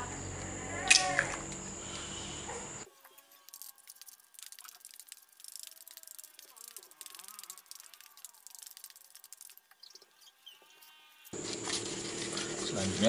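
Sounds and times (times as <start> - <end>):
fork scraping in plastic bowl: 11.4 - 13.0.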